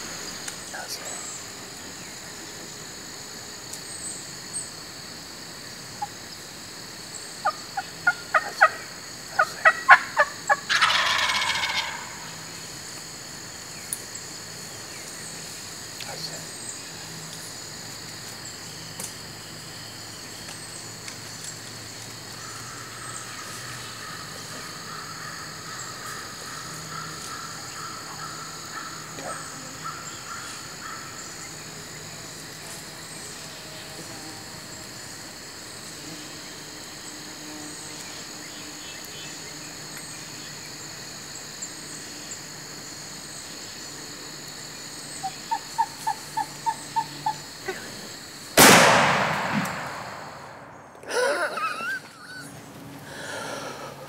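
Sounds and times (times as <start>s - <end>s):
high insect drone: 0.0s - 54.0s
turkey yelps: 7.4s - 8.8s, 9.4s - 12.4s, 45.2s - 47.4s
shotgun shot echoing: 48.6s - 50.8s.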